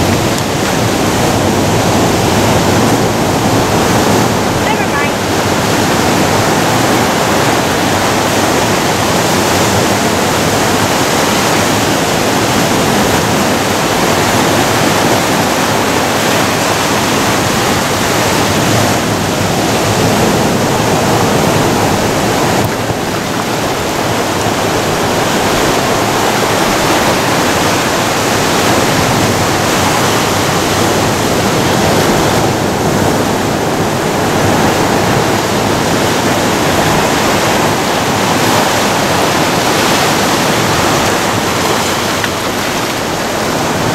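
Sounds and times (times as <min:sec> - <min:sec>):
ocean surf breaking on boulders: 0:00.0 - 0:43.9.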